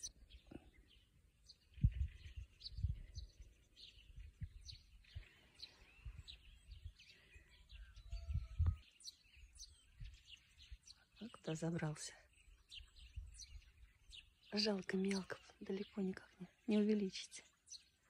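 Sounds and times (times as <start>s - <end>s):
small birds chirping: 0.0s - 18.0s
low thumps on microphone: 1.8s - 3.0s.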